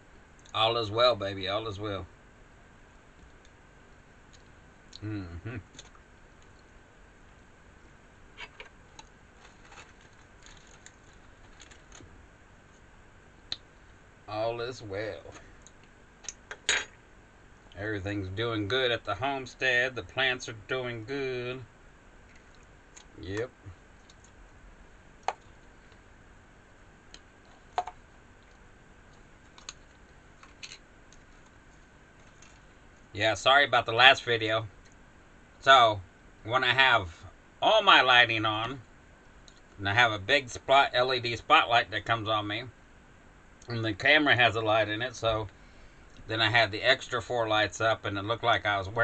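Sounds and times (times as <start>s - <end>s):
faint high hum: 0.0s - 49.0s
clicks and crackles of food handling: 8.4s - 12.1s, 27.1s - 32.7s.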